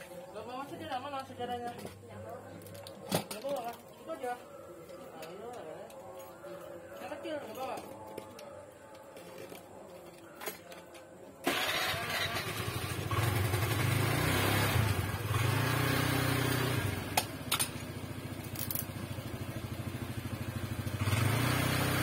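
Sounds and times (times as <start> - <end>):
motorcycle engine running: 11.5 - 22.0.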